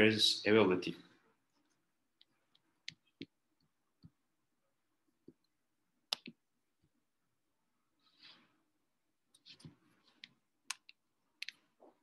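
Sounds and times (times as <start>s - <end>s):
faint clicks and taps: 1.5s - 4.2s, 5.0s - 7.0s, 9.3s - 12.0s.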